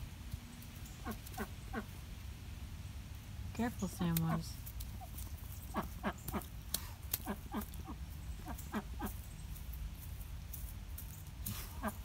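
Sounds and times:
duck quacking: 5.7s - 6.5s, 7.2s - 9.1s.

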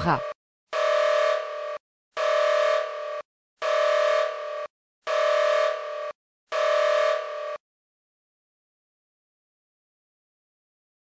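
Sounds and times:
pulsed emergency alert tone: 0.0s - 7.6s.

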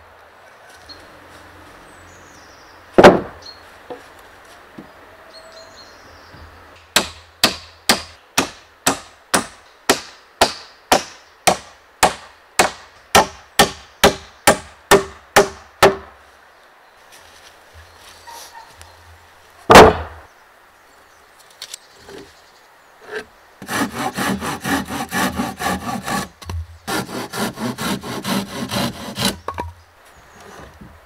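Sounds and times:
heavy wooden thud: 3.0s - 3.4s, 19.7s - 20.2s.

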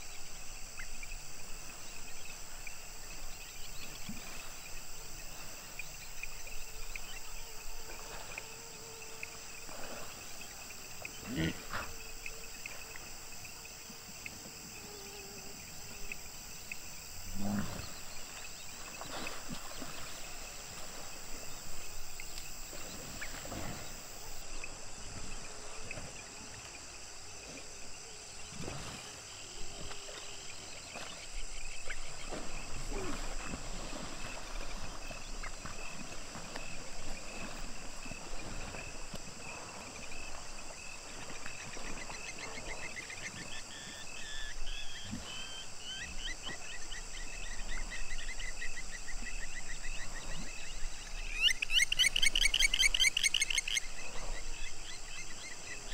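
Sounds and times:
hippopotamuses grunting: 9.6s - 12.8s, 17.2s - 18.4s.

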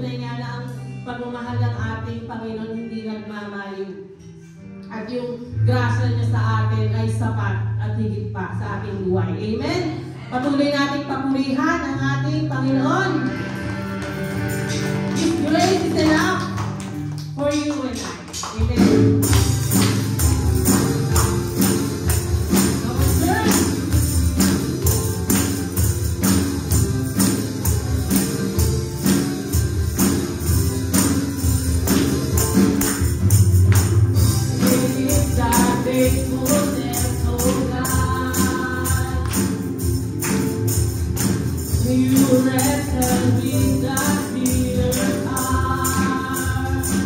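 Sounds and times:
live worship band music: 12.1s - 47.0s
tambourines shaken: 13.8s - 47.0s.

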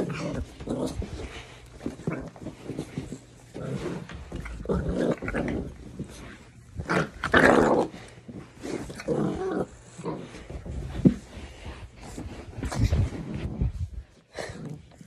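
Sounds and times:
puppy growling: 0.0s - 11.0s.

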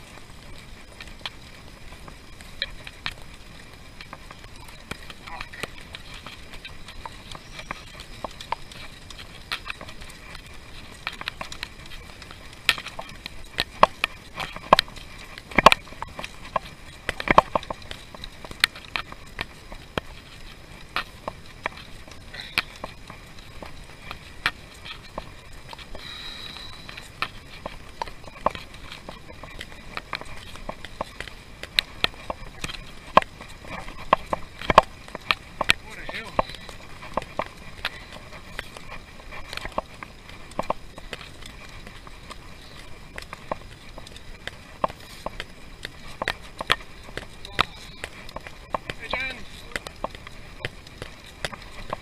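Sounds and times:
bicycle clicks and rattles: 0.0s - 52.0s
faint high whine: 14.3s - 43.3s.

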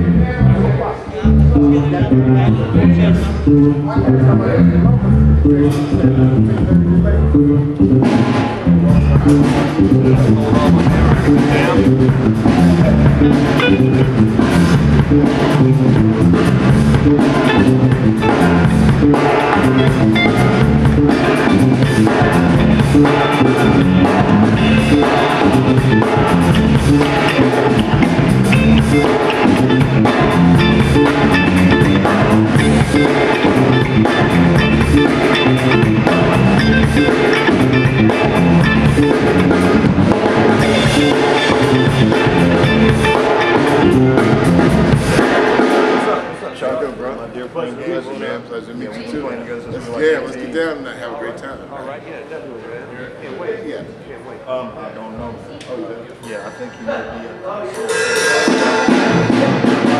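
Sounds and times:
electric bass: 0.0s - 46.0s
electric guitar: 0.0s - 46.3s
drum kit beat: 0.0s - 46.4s, 57.8s - 59.9s.

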